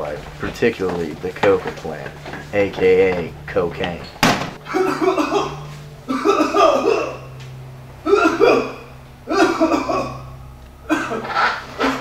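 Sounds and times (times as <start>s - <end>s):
person speaking: 0.0s - 5.8s
steady low hum: 0.0s - 12.0s.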